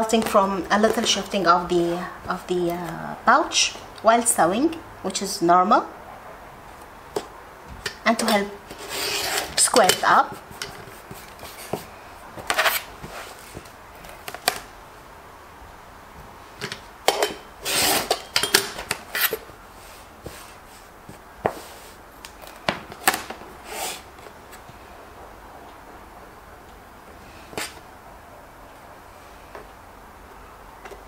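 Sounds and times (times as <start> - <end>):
fabric and ruler sliding: 8.7 - 9.6, 12.5 - 13.5, 17.6 - 18.2, 19.1 - 20.6.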